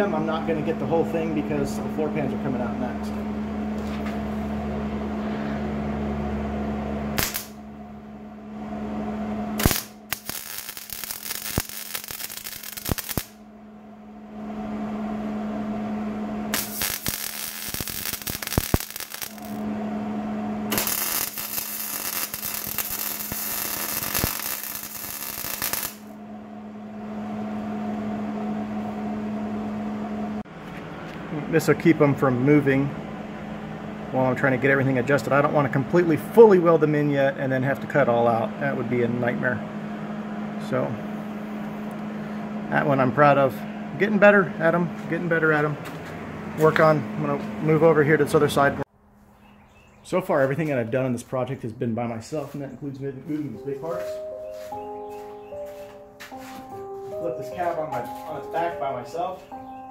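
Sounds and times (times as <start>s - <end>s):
steady hum: 0.0s - 48.9s
mig welder crackling: 7.1s - 7.7s, 9.6s - 13.4s, 16.5s - 19.7s, 20.6s - 26.2s.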